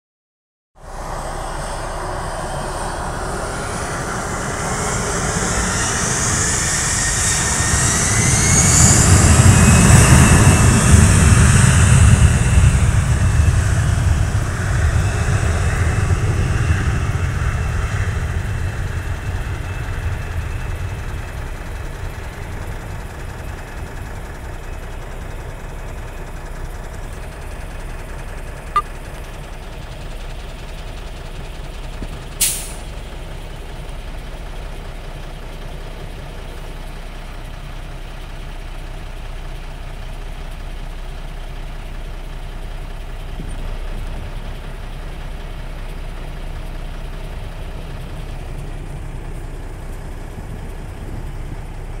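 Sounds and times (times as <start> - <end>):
heavy vehicle engine idling: 0.8 - 52.0
air brake hiss: 32.4 - 32.9.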